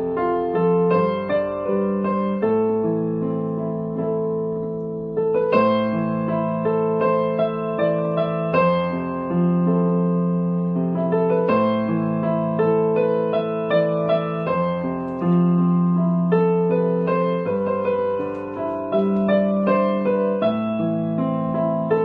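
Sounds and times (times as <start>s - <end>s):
electronic keyboard piano melody: 0.0s - 22.0s.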